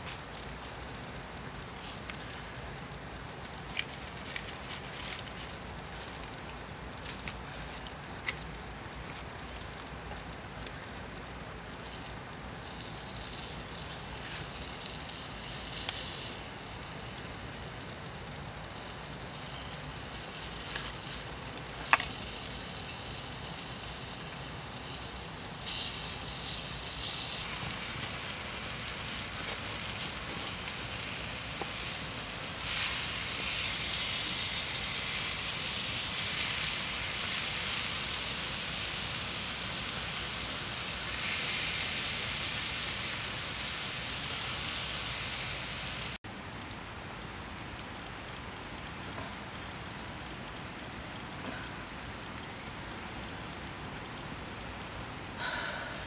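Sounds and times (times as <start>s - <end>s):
meat and potatoes sizzling: 11.8s - 46.2s.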